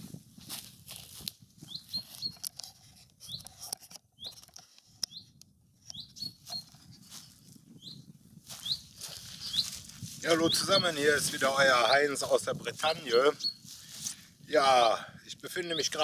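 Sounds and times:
rustling in grass: 0.0 - 3.7, 6.3 - 7.6, 8.3 - 14.7
footsteps in grass: 0.0 - 4.8, 5.9 - 14.3
small bird chirping: 1.6 - 2.5, 3.2 - 10.9, 13.0 - 13.7.

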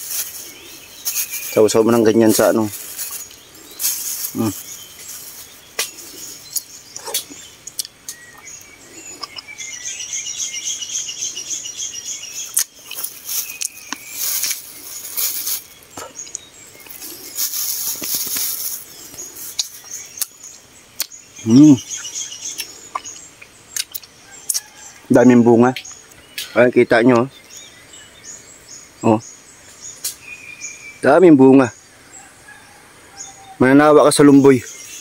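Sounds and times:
leaves rustling: 0.0 - 31.0
clicks and smacks of eating fruit: 5.8 - 9.6, 12.5 - 14.6, 17.9 - 20.4, 21.0 - 21.2, 22.5 - 24.7.

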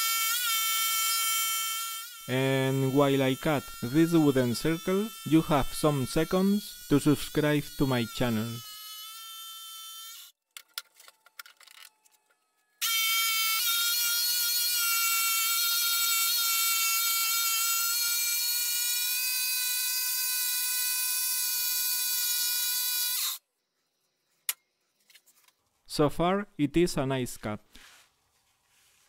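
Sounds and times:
jigsaw sawing wood: 1.8 - 9.6.

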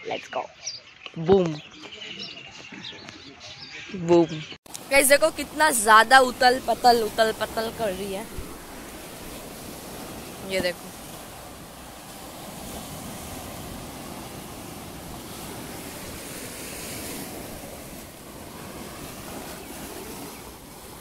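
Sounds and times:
waves breaking on shore: 4.7 - 21.0.

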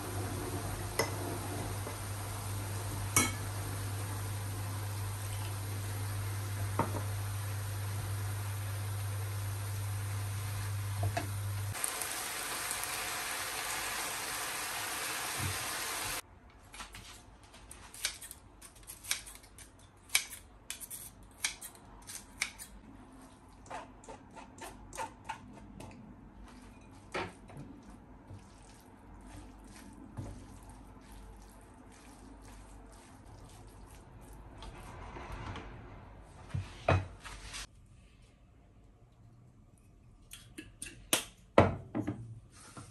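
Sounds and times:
food sizzling in frying pan: 0.0 - 16.2.

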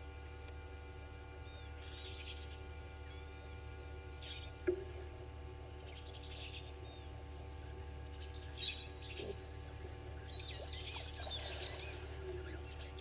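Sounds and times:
steady low hum: 0.0 - 13.0
birds chirping and whistling: 1.4 - 3.6, 4.2 - 4.6, 5.8 - 13.0
bird warbling: 4.2 - 4.7, 5.8 - 13.0.

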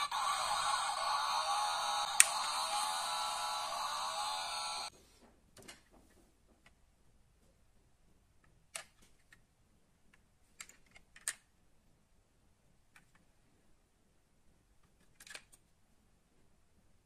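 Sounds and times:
model car clicks and taps: 10.1 - 11.5.

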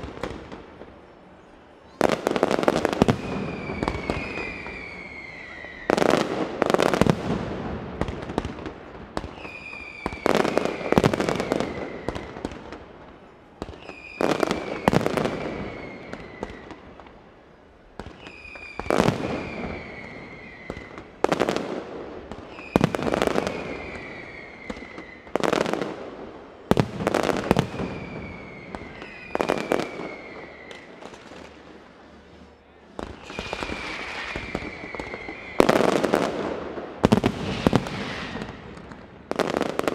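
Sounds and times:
firecracker falling whistle: 3.0 - 6.2, 9.2 - 12.4, 13.7 - 16.8, 18.1 - 21.1, 22.5 - 25.3, 27.5 - 30.9, 33.1 - 36.2, 37.2 - 38.7
firecrackers banging and crackling: 26.7 - 39.9.

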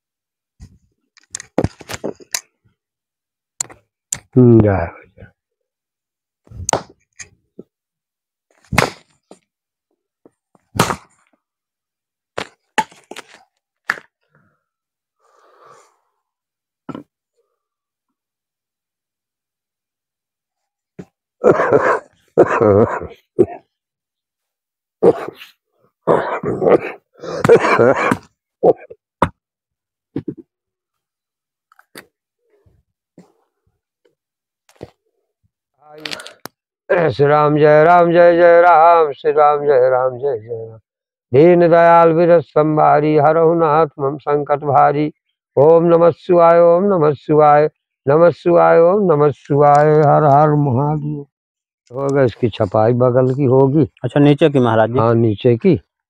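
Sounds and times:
sharp cracks: 8.6 - 9.3.

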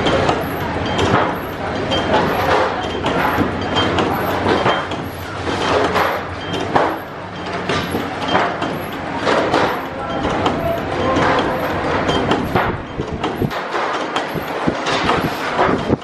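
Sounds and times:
machine hum: 0.0 - 16.0
metal clanks and knocks: 0.0 - 16.0.

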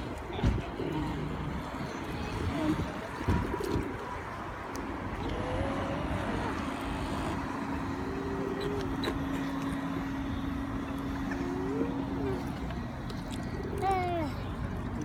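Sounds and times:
steady hum: 4.9 - 15.0
electric motor whining: 5.1 - 13.8.

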